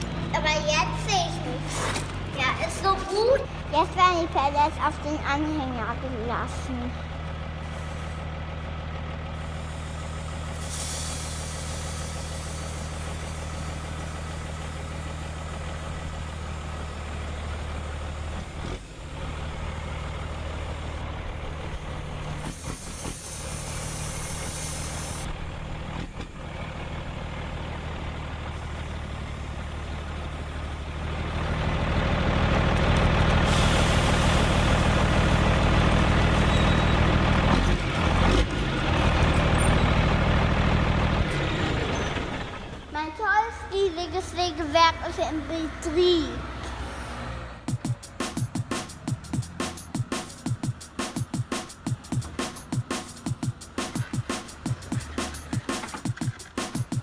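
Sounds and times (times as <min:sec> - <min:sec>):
engine idling hum: 0:00.0 - 0:46.8, 0:47.4 - 0:57.0
bursts of hissing: 0:09.4 - 0:14.3, 0:22.3 - 0:25.3.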